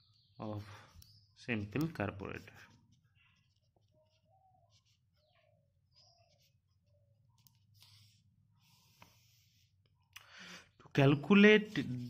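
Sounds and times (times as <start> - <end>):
pen scratching on paper: 1.8 - 9.9.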